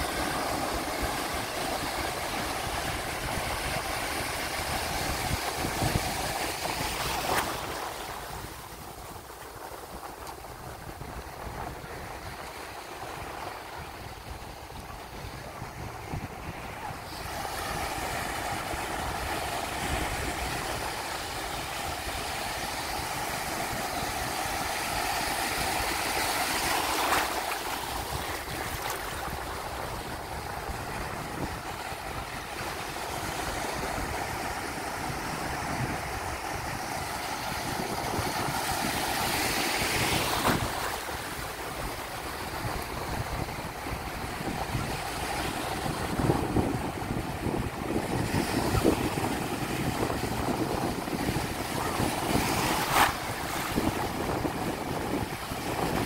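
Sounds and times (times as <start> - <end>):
wind rumbling on microphone: 0.0 - 56.0
small waves breaking: 16.7 - 48.0.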